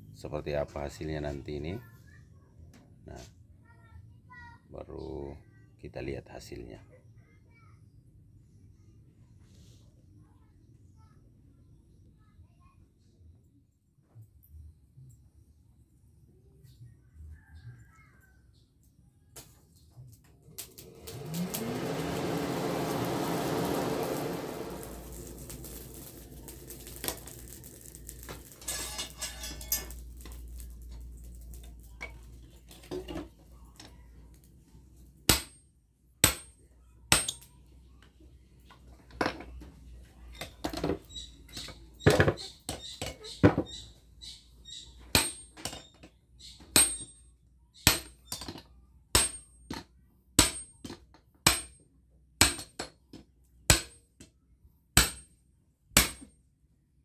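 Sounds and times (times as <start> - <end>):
forge rushing noise: 20.8 - 32.4
tongs clinking on metal: 25.6 - 32.2.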